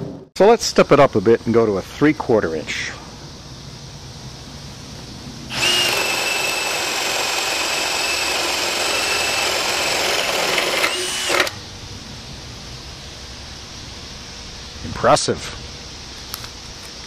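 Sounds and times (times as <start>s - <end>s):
cordless drill boring into wood: 5.5s - 11.6s.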